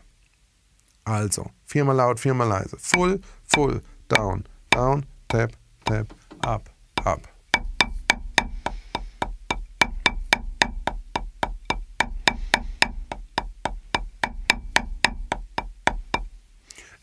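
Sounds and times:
drumsticks striking a drum: 0:02.9 - 0:16.4.

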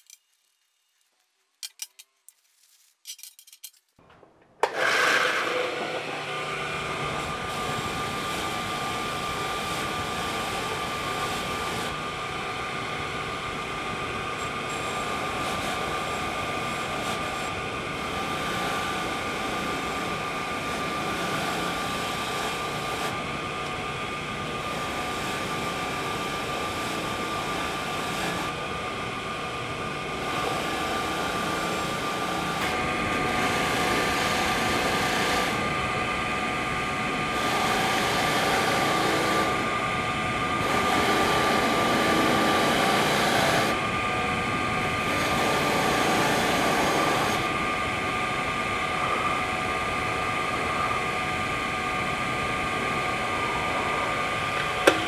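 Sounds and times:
metal parts clicking: 0:00.0 - 0:04.0
wire wheel grinder whining: 0:04.6 - 0:55.0.

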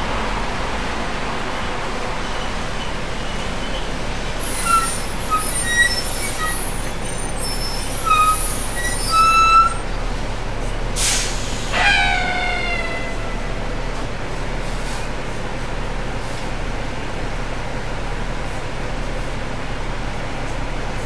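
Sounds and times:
bus engine and road rumble: 0:00.0 - 0:21.0
brake squeal: 0:02.2 - 0:10.1, 0:11.0 - 0:13.6
short high-pitched squeaks: 0:04.4 - 0:09.9
air brake hiss: 0:11.0 - 0:12.0.

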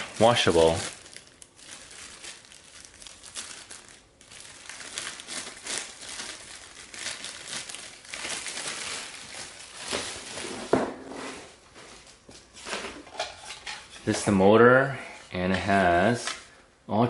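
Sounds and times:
plastic bag crinkling: 0:00.0 - 0:10.9.

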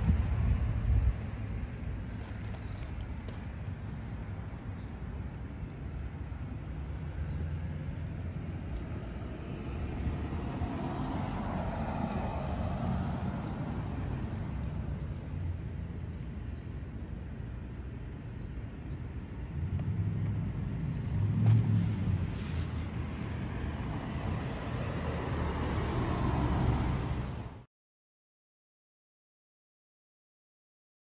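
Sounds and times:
distant traffic rumble: 0:00.0 - 0:27.6
car passing: 0:06.3 - 0:16.4, 0:19.1 - 0:27.6.

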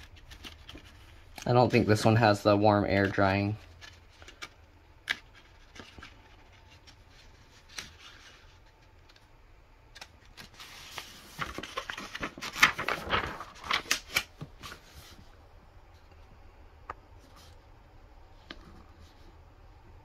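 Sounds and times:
paper pages rustling: 0:00.0 - 0:02.2, 0:02.9 - 0:09.3, 0:09.9 - 0:15.3.

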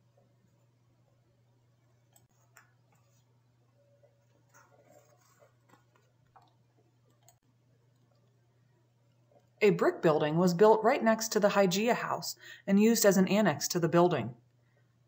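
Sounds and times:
faint low hum: 0:00.0 - 0:15.0
faint clicks and rustles: 0:01.5 - 0:09.6.

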